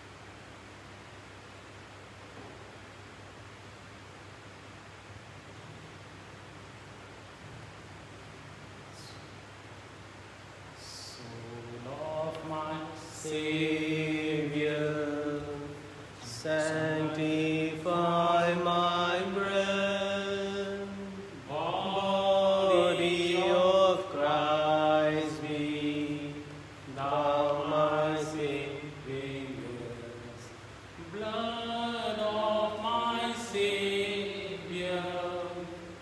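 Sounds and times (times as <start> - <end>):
person singing a hymn: 10.8 - 36.0.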